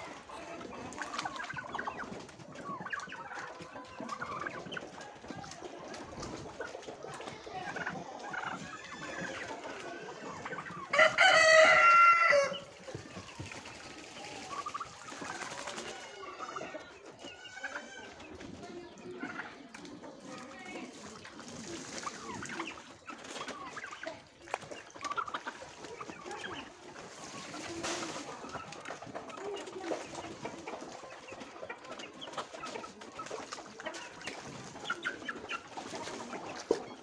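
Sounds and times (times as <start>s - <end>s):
chickens clucking: 0.0s - 37.0s
rooster crowing: 10.9s - 12.6s.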